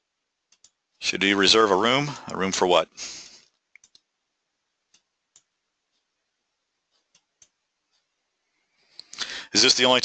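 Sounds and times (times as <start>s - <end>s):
faint computer clicks: 0.5s - 0.8s, 3.5s - 4.1s.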